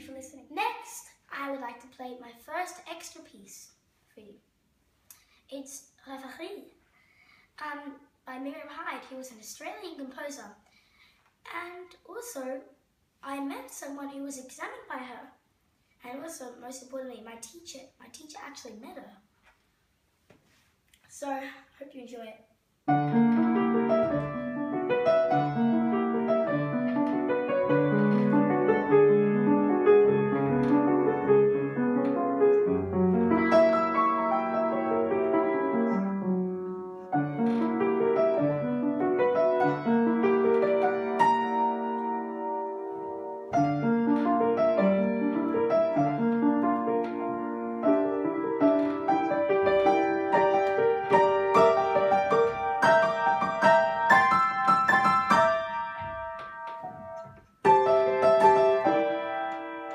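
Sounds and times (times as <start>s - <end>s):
solo piano piece: 22.9s - 59.9s.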